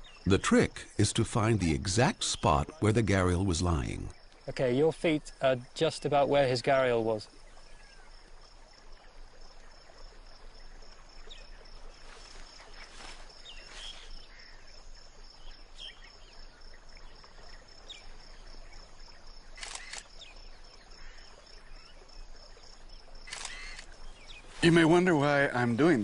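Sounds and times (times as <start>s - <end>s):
bird chirps: 12.6s - 14.7s
camera shutter clicks: 19.6s - 20.1s, 23.3s - 23.9s.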